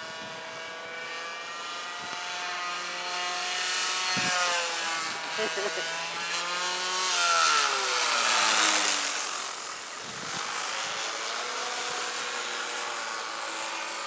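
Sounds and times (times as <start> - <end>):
model plane propeller buzzing: 0.0 - 14.0.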